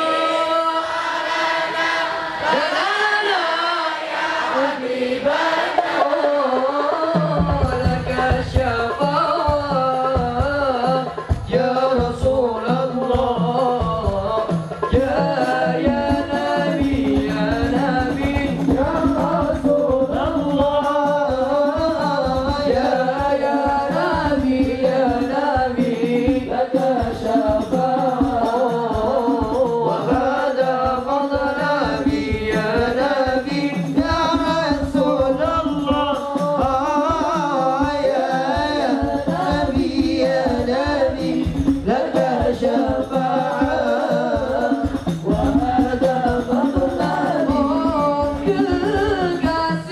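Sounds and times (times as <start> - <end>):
men singing melismatic religious song: 0.0 - 49.9
hand drum percussion: 5.2 - 49.9.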